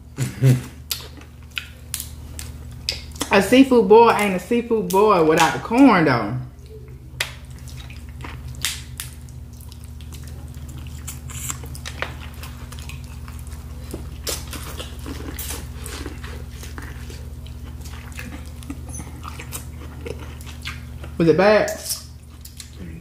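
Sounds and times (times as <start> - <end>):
steady low hum: 0.0 - 23.0
chewing corn on the cob: 6.6 - 23.0.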